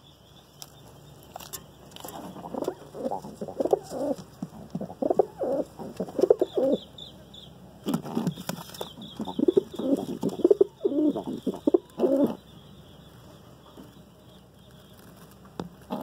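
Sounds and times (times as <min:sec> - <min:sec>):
pigeons cooing: 0:01.9 - 0:07.2, 0:07.8 - 0:12.8, 0:15.8 - 0:16.0.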